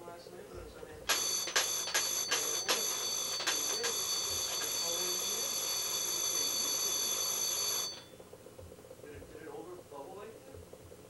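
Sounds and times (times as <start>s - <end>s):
high-pitched ringing: 1.1s - 8.2s.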